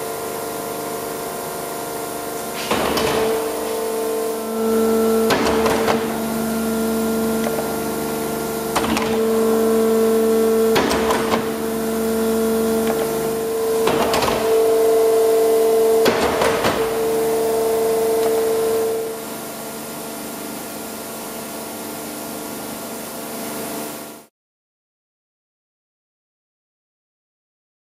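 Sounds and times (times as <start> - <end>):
hydraulic system whine: 0.0 - 23.0
hissing clunks of hydraulics: 2.5 - 4.4, 5.2 - 6.4, 7.4 - 9.3, 10.7 - 11.7, 12.8 - 14.6.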